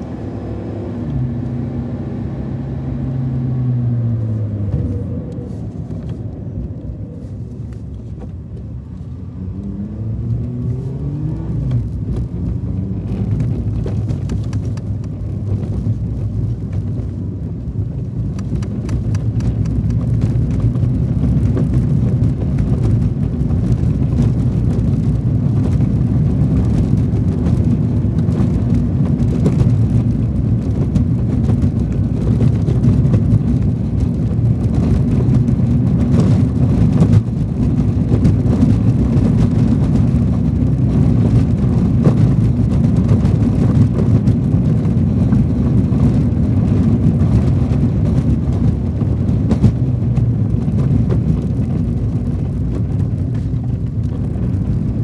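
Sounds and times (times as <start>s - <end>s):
car engine and tyres rumbling: 0.0s - 55.0s
knocks from rough road: 18.3s - 55.0s.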